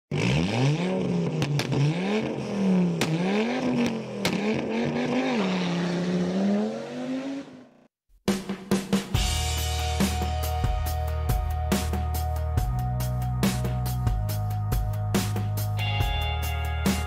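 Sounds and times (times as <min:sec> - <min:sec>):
car engine revving: 0:00.1 - 0:07.9.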